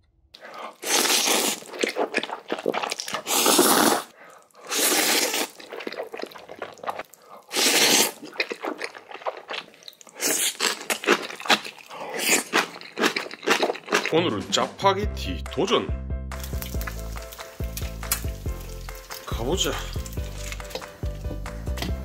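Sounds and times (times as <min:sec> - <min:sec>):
crunchy chewing: 0:00.4 - 0:14.1, 0:16.4 - 0:21.9
noodle slurping: 0:00.4 - 0:14.1.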